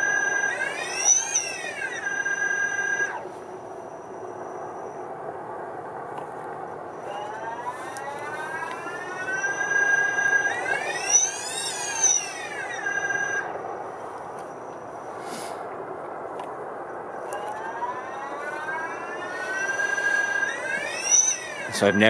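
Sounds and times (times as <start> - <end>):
electric motor whine: 0.0 - 5.0, 7.0 - 14.9, 17.2 - 22.0.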